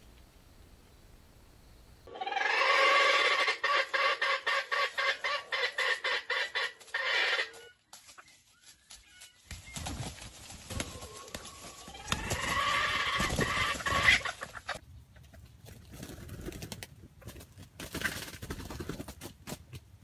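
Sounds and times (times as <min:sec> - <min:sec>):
rooster calling: 0:02.1 - 0:07.8, 0:10.7 - 0:14.4.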